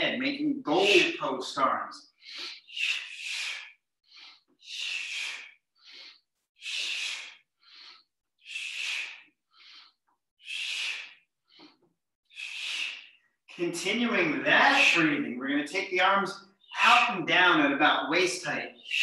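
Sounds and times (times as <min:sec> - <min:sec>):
forceful rhythmic breathing: 0:00.0 - 0:19.0.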